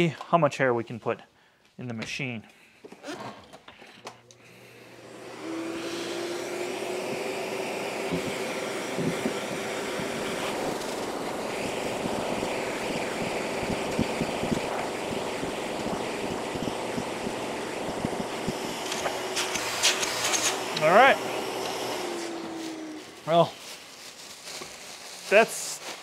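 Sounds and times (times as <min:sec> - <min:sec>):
vacuum cleaner running: 0:04.3 - 0:24.2
hair knocking in vacuum hose: 0:05.8 - 0:22.0.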